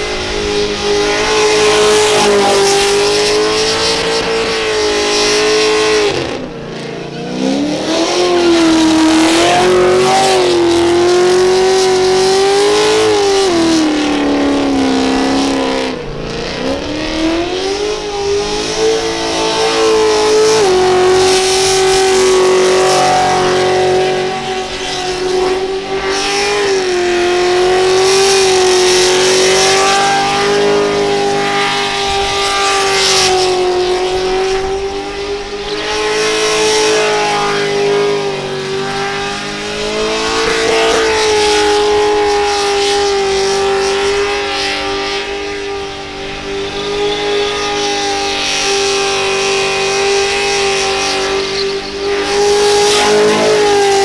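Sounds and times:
car engine revving: 0.0s - 54.0s.

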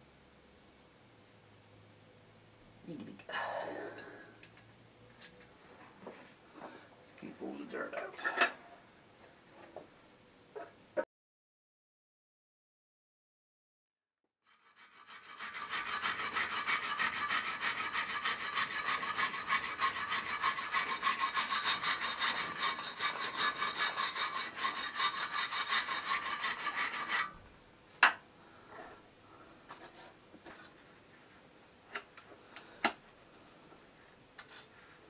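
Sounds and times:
wire brush scrubbing metal: 14.5s - 27.4s.

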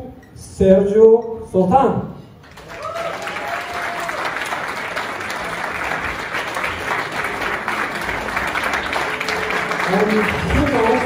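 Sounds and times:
crowd applauding: 2.4s - 11.0s.

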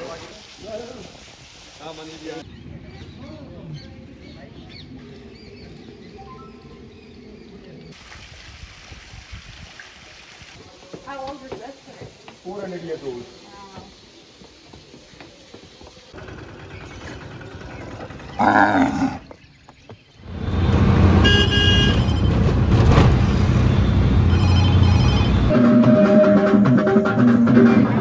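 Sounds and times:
street traffic: 10.6s - 28.0s
vehicle horns honking: 21.1s - 22.5s, 23.7s - 27.2s
music: 24.8s - 28.0s.

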